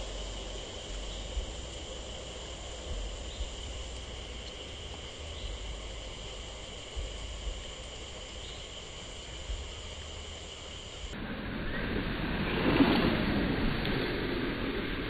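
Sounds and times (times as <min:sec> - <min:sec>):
low rumble: 0:00.0 - 0:08.4, 0:09.4 - 0:15.0
insects trilling: 0:00.0 - 0:11.2
broad rushing noise: 0:00.0 - 0:15.0.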